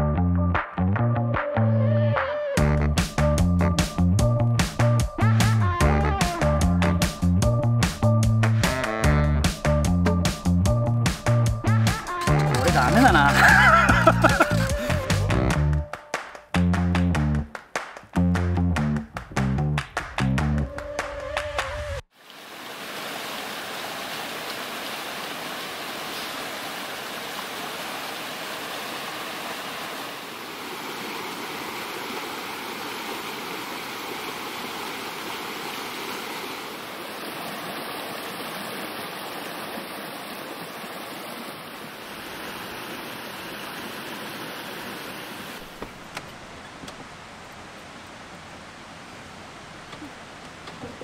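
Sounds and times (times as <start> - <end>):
stream rushing over rocks: 22.1 - 51.0.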